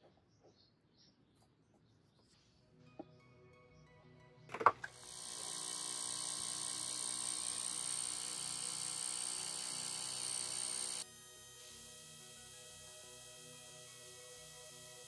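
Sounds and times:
gas hissing from torch nozzle: 0:04.9 - 0:11.8.

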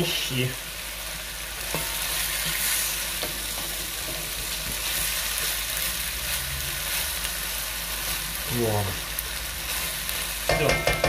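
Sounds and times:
food sizzling in a frying pan: 0:00.0 - 0:11.0
spatula scraping a pan: 0:01.6 - 0:05.6.

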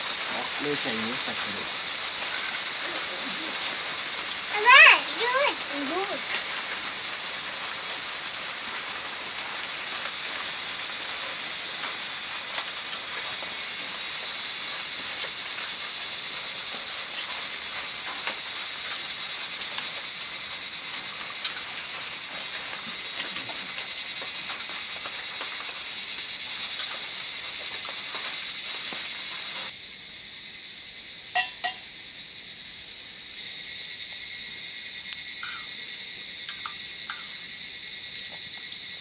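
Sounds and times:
insect chorus drone: 0:00.0 - 0:39.0
spoons clinking on steel plates: 0:31.3 - 0:31.8.

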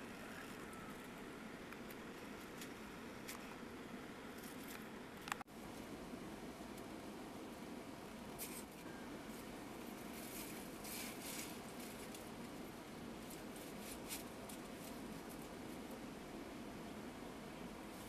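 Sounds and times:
steady low hiss: 0:00.0 - 0:18.0
branches rustling and scraping: 0:08.4 - 0:16.0.

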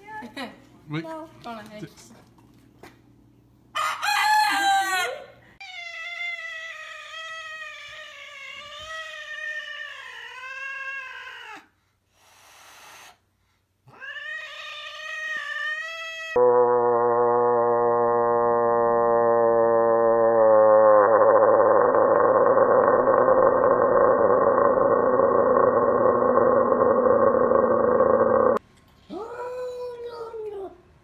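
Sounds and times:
frog screaming: 0:15.4 - 0:28.6.

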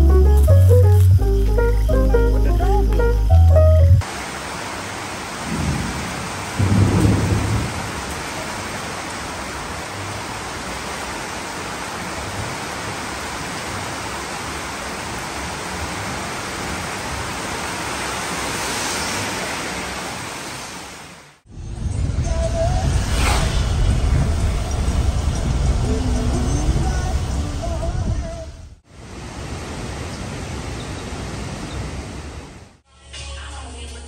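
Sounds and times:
heavy rain pouring: 0:00.0 - 0:32.8
thunder rumbling: 0:05.4 - 0:08.9, 0:21.5 - 0:28.8
car passing on wet road: 0:16.4 - 0:21.4.

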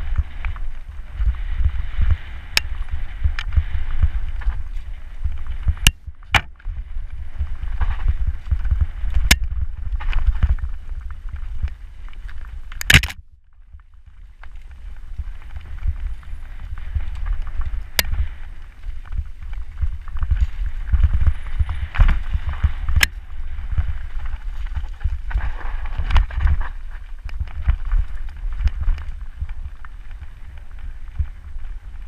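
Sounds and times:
bike rattling: 0:00.0 - 0:13.3, 0:13.9 - 0:32.0
wind buffeting microphone: 0:00.0 - 0:32.0.

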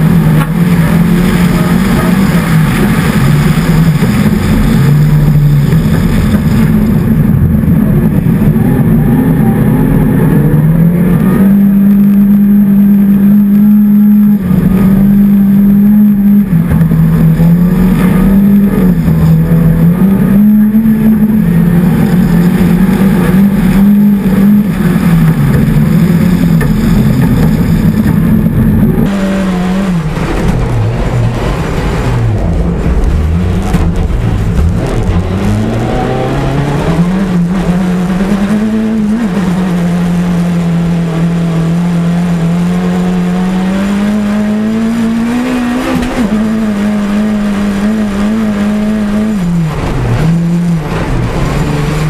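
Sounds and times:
engine heard inside car cabin: 0:00.0 - 0:52.0
rally car engine revving hard: 0:00.0 - 0:52.0.

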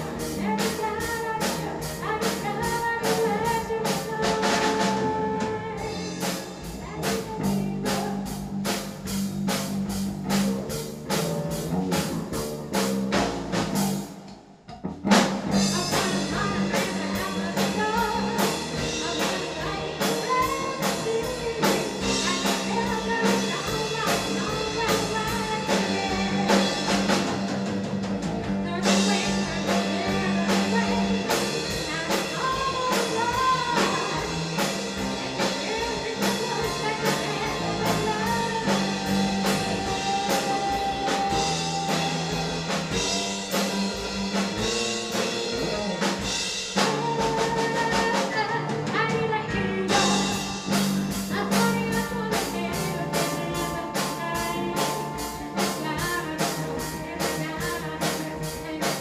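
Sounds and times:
female lead vocal: 0:00.0 - 0:09.7, 0:15.5 - 0:27.6, 0:28.5 - 0:43.8, 0:44.6 - 0:59.0
drum kit steady beat: 0:00.0 - 0:59.0
electric bass: 0:00.0 - 0:59.0
electric guitar: 0:14.9 - 0:59.0
keyboard: 0:15.0 - 0:59.0.

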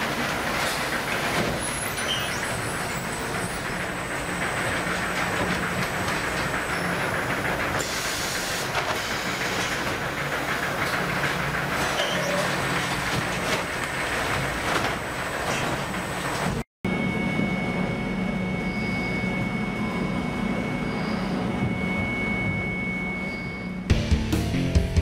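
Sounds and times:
palletizer machine running: 0:00.0 - 0:23.8.

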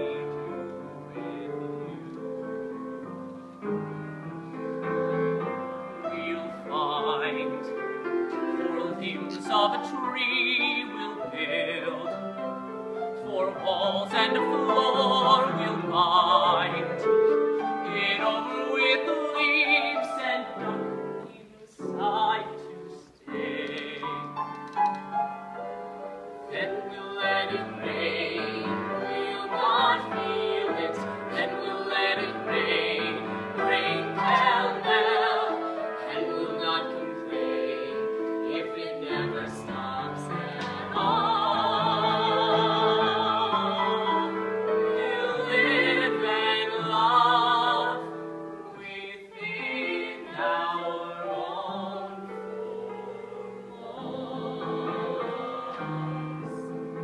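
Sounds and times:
grand piano accompaniment: 0:00.0 - 0:57.0
woman and man singing a duet: 0:06.0 - 0:07.7, 0:08.4 - 0:12.3, 0:13.2 - 0:17.2, 0:17.8 - 0:24.3, 0:26.5 - 0:48.1, 0:48.7 - 0:56.0.

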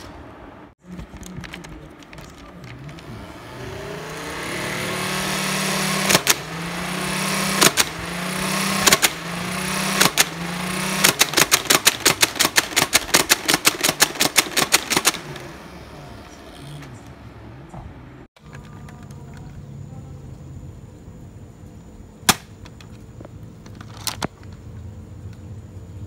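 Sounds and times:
toy blaster motors whirring: 0:02.2 - 0:15.5
fast mechanical clicks: 0:04.9 - 0:15.5
dart shots cracking: 0:05.9 - 0:06.6, 0:07.2 - 0:15.5, 0:22.3 - 0:22.8.

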